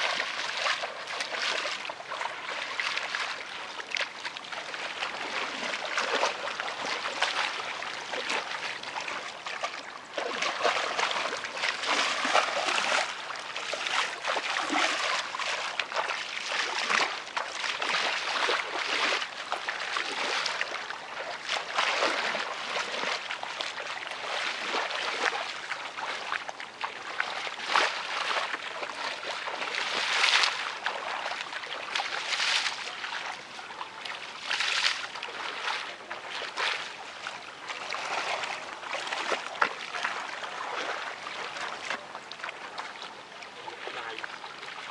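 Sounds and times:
muddy water sloshing and splashing: 0.0s - 44.9s.

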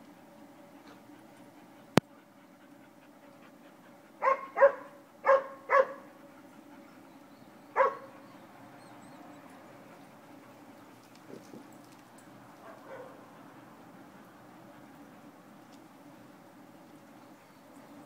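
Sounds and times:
dog barking: 4.2s - 6.0s, 7.8s - 8.1s, 12.6s - 13.2s.

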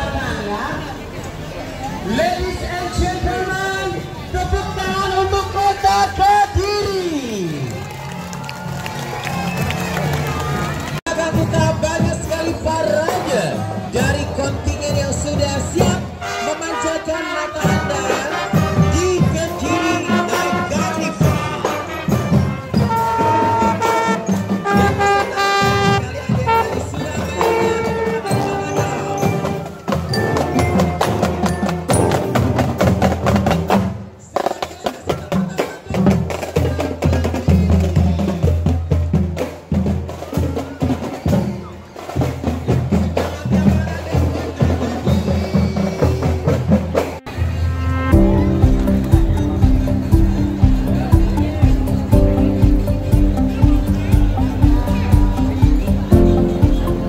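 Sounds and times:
brass horns: 15.8s - 33.8s, 47.0s - 50.5s
steady drum beat: 17.6s - 47.3s, 48.1s - 57.0s
bass drums beating: 47.3s - 57.0s.

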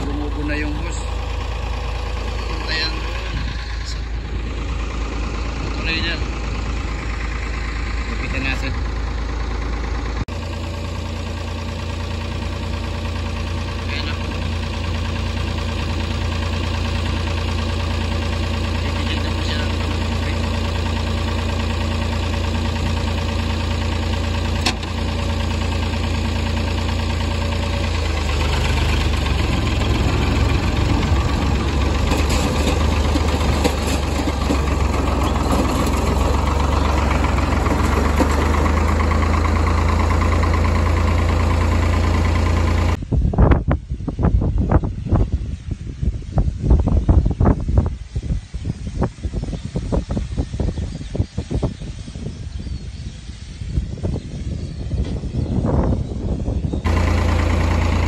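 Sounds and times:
engine idling: 0.0s - 43.2s, 54.6s - 58.0s.

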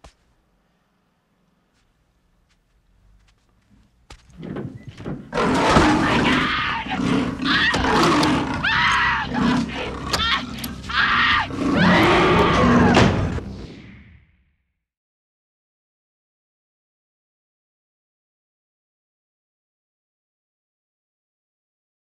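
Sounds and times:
leopard snarling and roaring: 5.1s - 13.5s
woman screaming: 8.6s - 13.0s.

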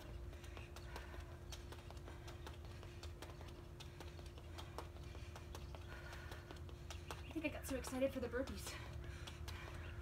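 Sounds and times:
sneaker footsteps on concrete: 0.0s - 10.0s.

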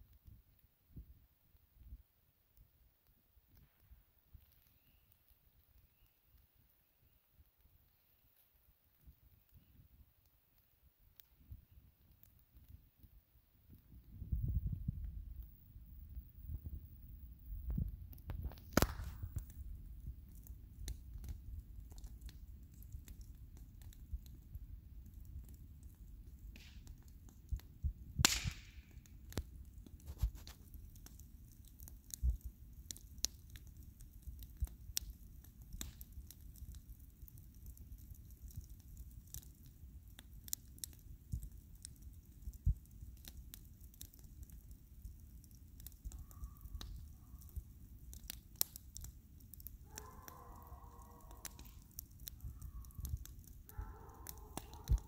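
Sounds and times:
bonfire crackling and rumbling: 0.0s - 55.0s
sharp loud pop with hiss: 28.2s - 28.8s.

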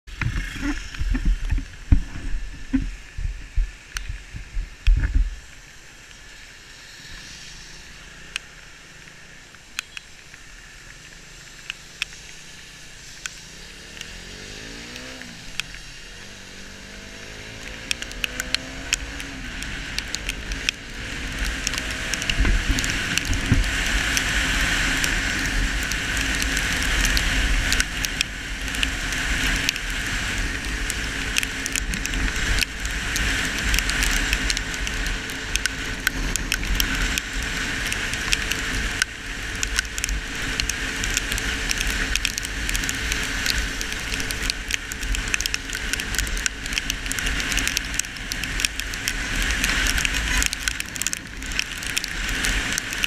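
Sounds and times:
wind thumps on microphone: 0.1s - 5.5s, 21.4s - 24.0s
tyre and spray hiss: 2.2s - 10.8s
scattered ticks: 8.2s - 14.2s, 17.5s - 53.0s
motorcycle engine: 11.2s - 52.7s.

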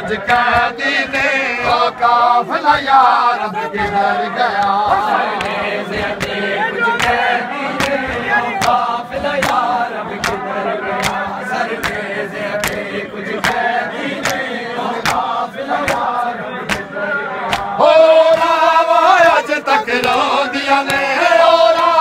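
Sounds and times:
crowd of men chanting: 0.0s - 22.0s
hands slapping chests: 0.1s - 18.6s, 20.0s - 21.1s.

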